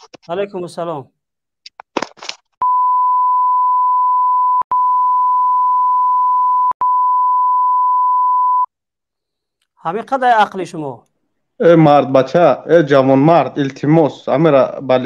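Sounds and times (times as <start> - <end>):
high-pitched censor bleep: 2.6 - 8.7
person speaking: 9.8 - 15.0.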